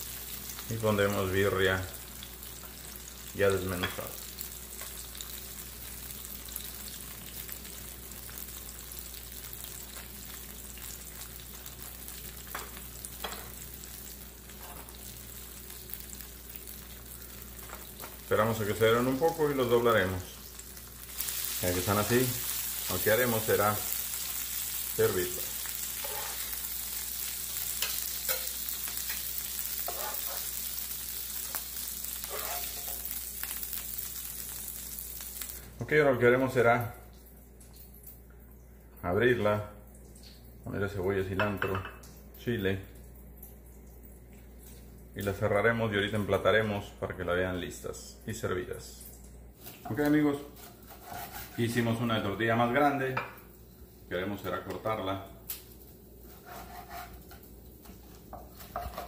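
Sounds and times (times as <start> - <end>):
tortillas sizzling on griddle: 0.0 - 35.7, 55.5 - 59.0.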